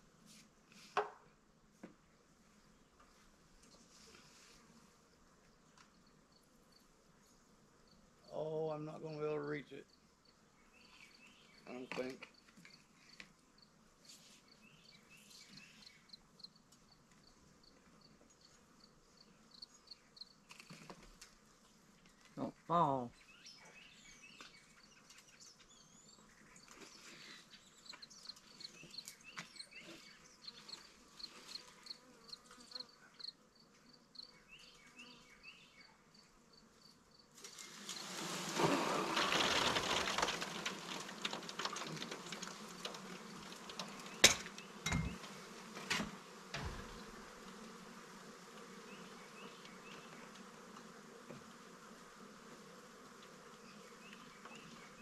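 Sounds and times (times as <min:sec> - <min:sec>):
bee swarm buzzing: 0:28.1 - 0:35.8, 0:37.3 - 0:55.0
knocks on wooden box: 0:44.2 - 0:45.2.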